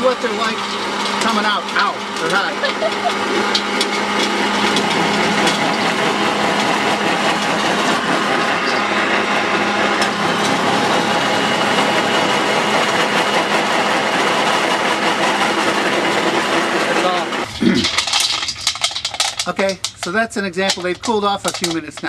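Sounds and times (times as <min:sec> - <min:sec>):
pellet mill running: 0:00.0 - 0:22.0.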